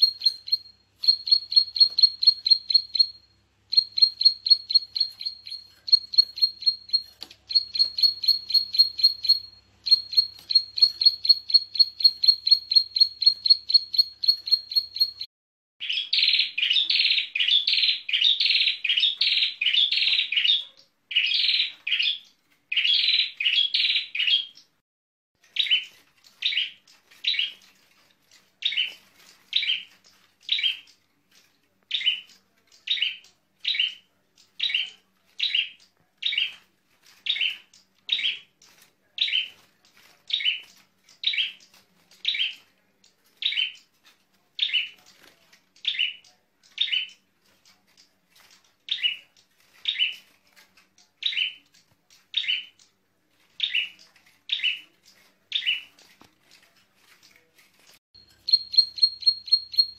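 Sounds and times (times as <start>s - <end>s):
bird high chirps: 0.0s - 24.7s, 53.6s - 54.9s, 58.2s - 59.9s.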